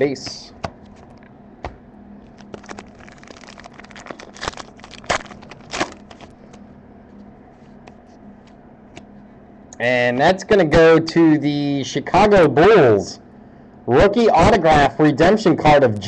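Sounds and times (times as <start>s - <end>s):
faint steady hum: 0.0s - 16.0s
foil wrapper crinkling and tearing: 2.2s - 6.5s.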